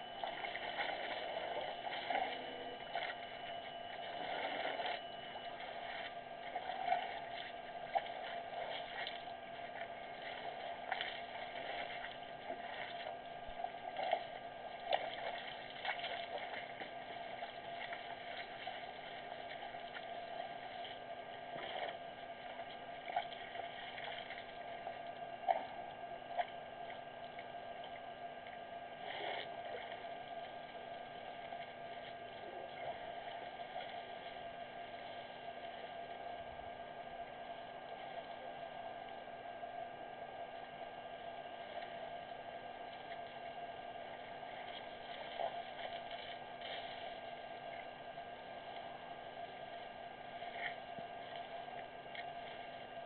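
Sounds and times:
water sloshing and splashing: 0:00.0 - 0:38.4, 0:41.6 - 0:53.0
faint steady tones: 0:00.0 - 0:53.0
steady background drone: 0:00.0 - 0:53.0
elephants drinking water: 0:00.2 - 0:20.9.

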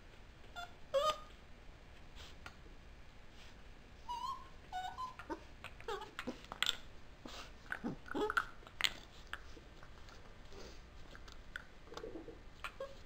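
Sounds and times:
puppy yipping and whining: 0:00.5 - 0:01.3, 0:04.0 - 0:06.8, 0:12.7 - 0:13.0.

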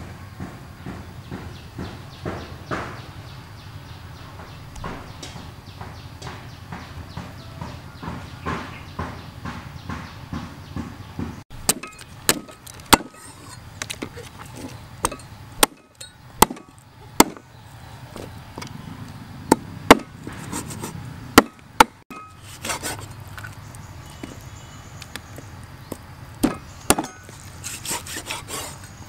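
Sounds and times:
meat cleaver chopping on wooden board: 0:15.0 - 0:17.4, 0:19.5 - 0:20.6.

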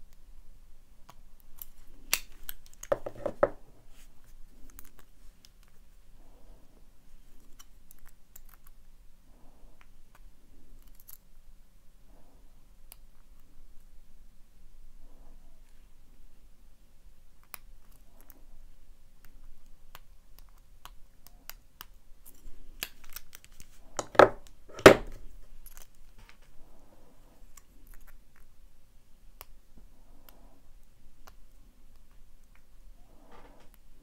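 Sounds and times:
lock picking clicks and scrapes: 0:10.8 - 0:11.2, 0:22.2 - 0:26.4
padlock knocking on table: 0:24.0 - 0:25.1.

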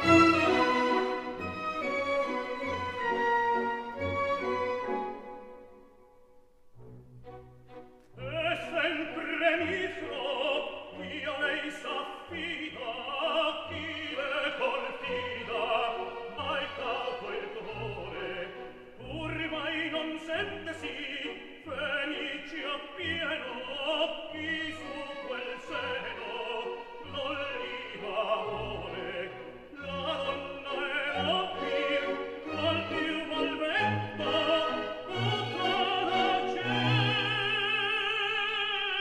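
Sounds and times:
orchestral accompaniment: 0:00.0 - 0:06.0, 0:06.7 - 0:38.3
operatic singing: 0:08.1 - 0:39.0.

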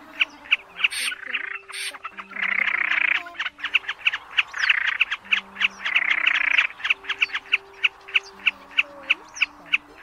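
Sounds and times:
harsh rasping calls: 0:00.0 - 0:10.0
sharp clipped bird notes: 0:00.2 - 0:05.2.

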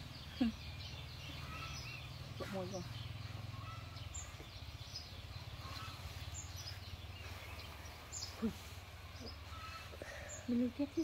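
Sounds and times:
faint bird chirps: 0:00.0 - 0:11.0.

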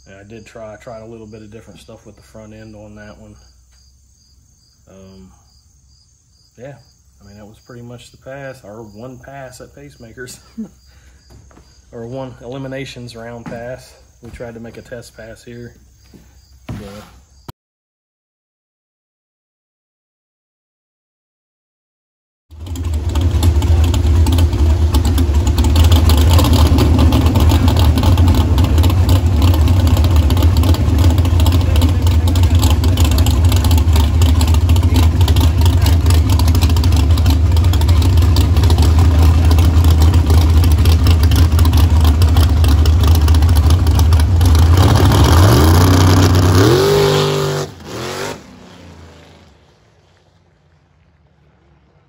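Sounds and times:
drag car engine running: 0:22.5 - 0:52.0.

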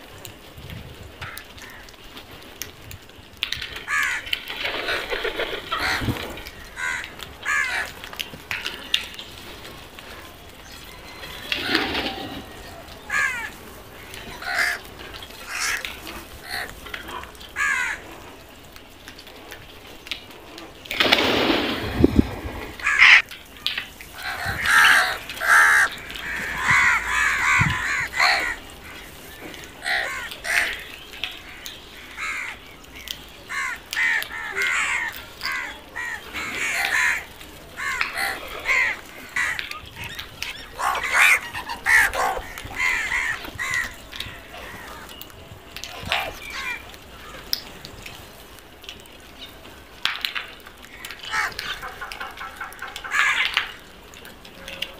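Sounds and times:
crows cawing: 0:01.2 - 0:02.0, 0:03.7 - 0:09.2, 0:10.9 - 0:18.2, 0:22.7 - 0:23.2, 0:24.1 - 0:45.2, 0:45.9 - 0:47.5, 0:50.8 - 0:53.9.

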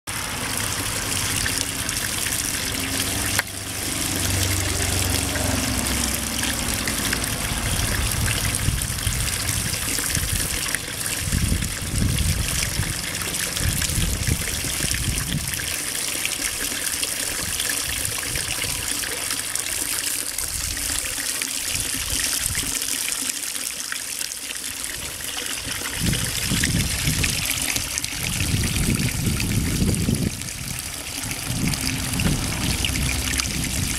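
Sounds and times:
fountain water splashing into basin: 0:00.1 - 0:33.9
low rumble: 0:02.8 - 0:12.9, 0:26.5 - 0:33.9.

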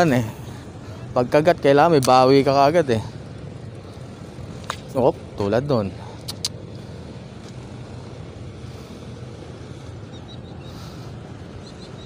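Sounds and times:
low engine hum: 0:00.0 - 0:12.0
sharp clicks: 0:06.2 - 0:06.7.

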